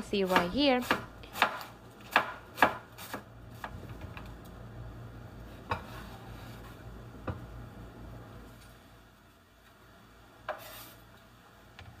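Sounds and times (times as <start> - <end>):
knife chopping on wooden board: 0.2 - 3.8, 5.7 - 6.0.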